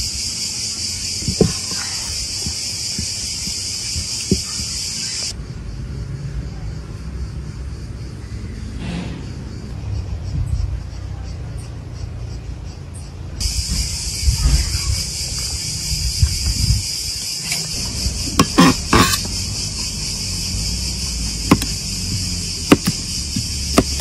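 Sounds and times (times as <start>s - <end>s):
high-pitched insect chorus: 0.0s - 24.0s
knife cutting vegetables: 18.4s - 19.3s, 21.5s - 21.8s, 22.7s - 24.0s.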